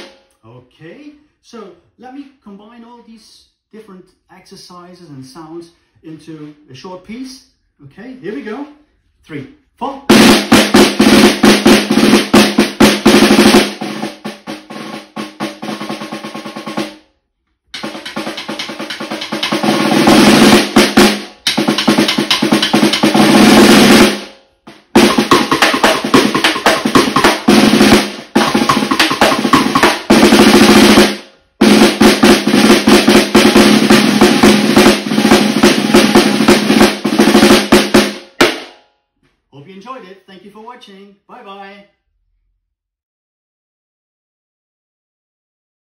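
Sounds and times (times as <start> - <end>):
snare drum rolls: 0.0 - 0.2, 10.1 - 17.0, 17.8 - 38.8.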